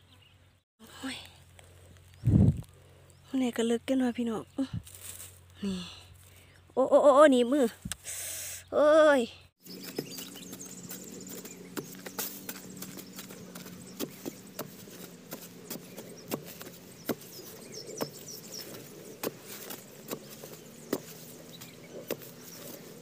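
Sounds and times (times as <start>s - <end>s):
spade chopping into hard soil: 11.7s - 22.9s.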